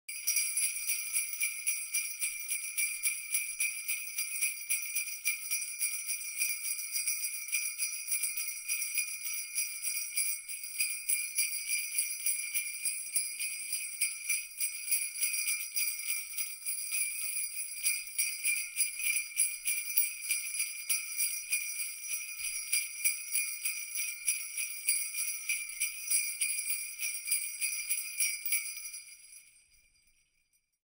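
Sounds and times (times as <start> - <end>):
jingle bells shaken: 0.1 - 30.8.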